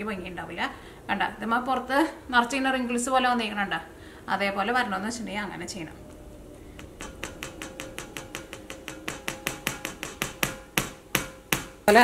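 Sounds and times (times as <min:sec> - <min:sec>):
chicken tapping against bowl: 0:06.7 - 0:11.9.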